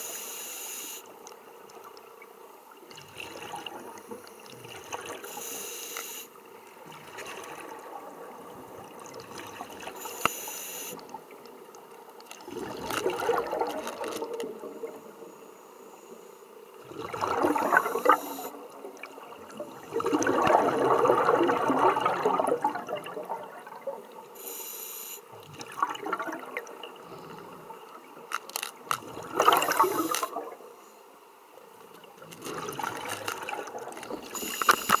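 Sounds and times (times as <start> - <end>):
quiet regulator hiss: 0.0 - 20.0, 24.1 - 25.6, 26.6 - 35.0
air bubbling underwater: 16.9 - 18.2, 19.9 - 23.8, 29.1 - 30.6.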